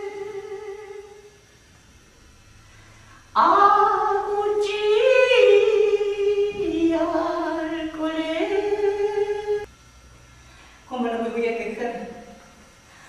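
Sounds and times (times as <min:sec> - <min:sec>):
person singing unaccompanied: 0:03.4 - 0:09.7.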